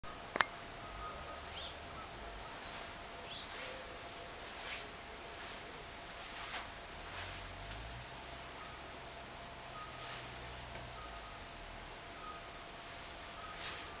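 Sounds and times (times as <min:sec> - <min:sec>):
small birds chirping: 0:00.0 - 0:14.0
sharp click: 0:00.3 - 0:00.5.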